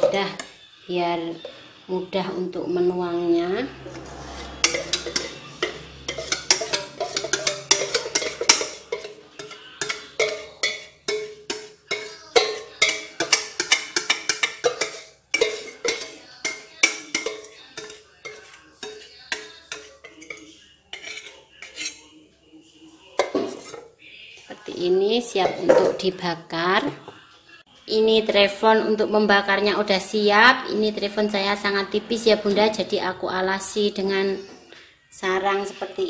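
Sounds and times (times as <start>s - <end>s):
utensil scraping mixing bowl: 3.4s - 22.2s.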